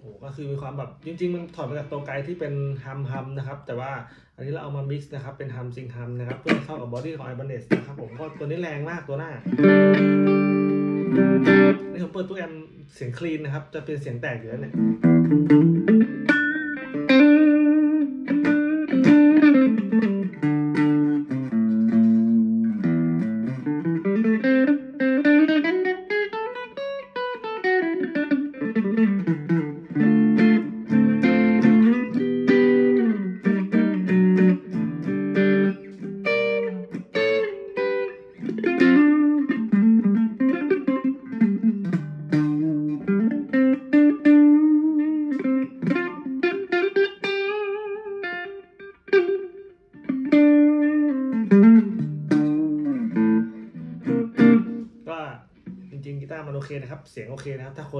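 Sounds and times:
electric guitar melodic lead: 9.1 - 12.2, 14.6 - 55.9.

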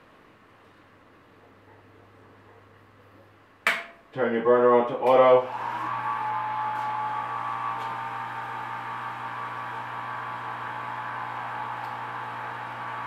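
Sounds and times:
pump humming: 5.4 - 13.0.

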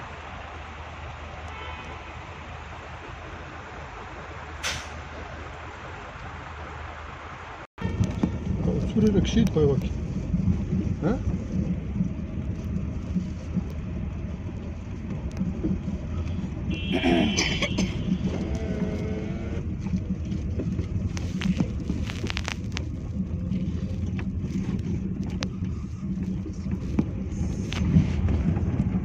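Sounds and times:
car engine and tyre rumble: 0.0 - 29.0
car knocks and rattles: 19.6 - 29.0.

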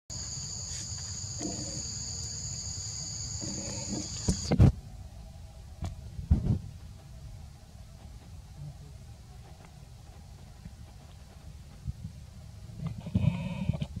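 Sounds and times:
insect drone high whine: 0.1 - 6.1.

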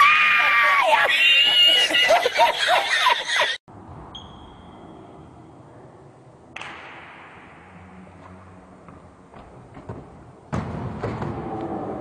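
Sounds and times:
man laughing heartily: 0.9 - 3.6.

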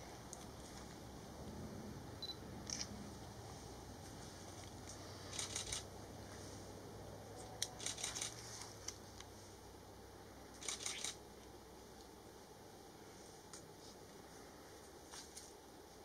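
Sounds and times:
camera shutters clicking: 5.3 - 5.9, 7.7 - 8.4, 10.6 - 11.2.

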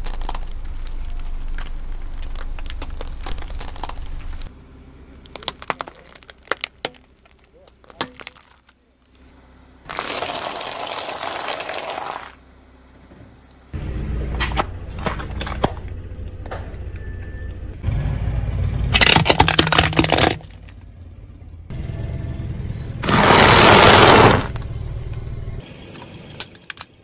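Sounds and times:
plastic cracking under tyre: 0.0 - 4.5, 5.2 - 8.8, 19.0 - 20.7
tyre rumbling on pavement: 9.9 - 12.4, 23.0 - 24.6.

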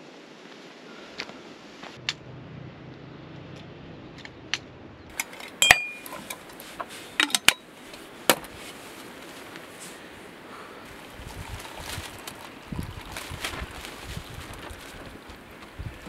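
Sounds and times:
metallic ring: 5.4 - 6.4.

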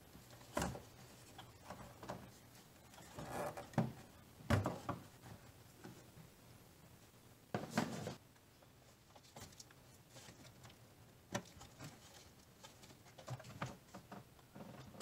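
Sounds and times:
rustling: 7.0 - 15.0.

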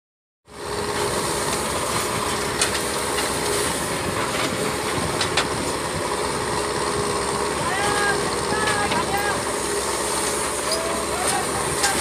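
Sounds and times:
diesel engines running: 0.5 - 12.0.

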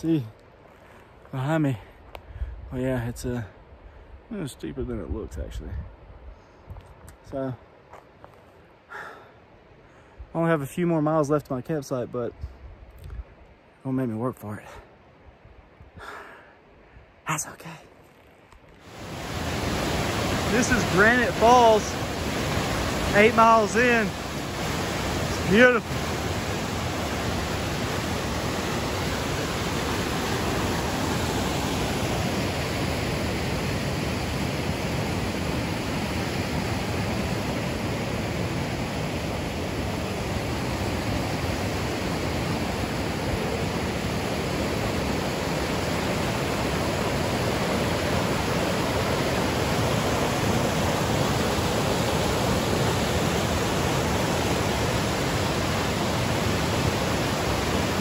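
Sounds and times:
creek rushing over rocks: 18.8 - 58.0.

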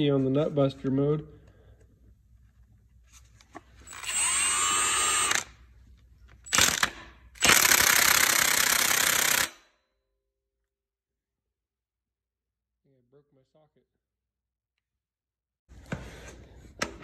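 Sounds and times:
impact wrench whining: 3.8 - 9.7.

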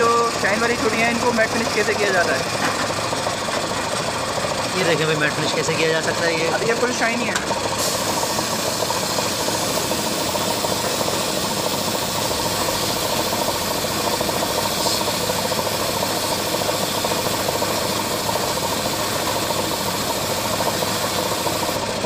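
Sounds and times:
sandblasting air jet hissing: 7.7 - 21.8.

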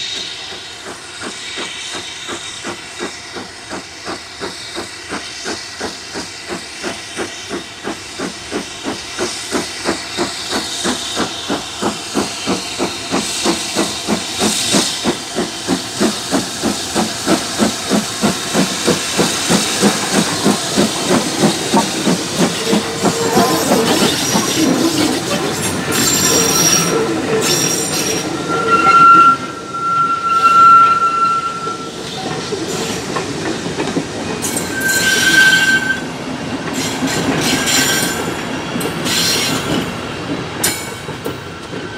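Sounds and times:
clanking train wheels: 0.0 - 41.9
steam hiss: 0.0 - 41.9
steam locomotive exhaust beats: 0.0 - 41.9
train coaches rumbling: 0.0 - 41.9
high wheel squeal: 19.7 - 33.1, 34.4 - 36.1, 36.8 - 38.4.

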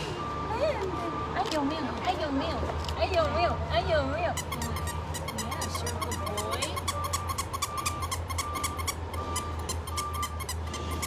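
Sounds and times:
puppy whimpering: 4.3 - 11.0
high beep pulses: 6.1 - 11.0.

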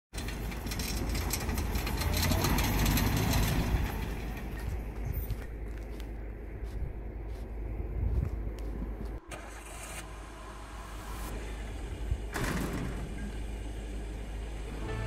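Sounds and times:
car engine under load: 0.1 - 15.0
wind noise on microphone: 7.8 - 9.2.

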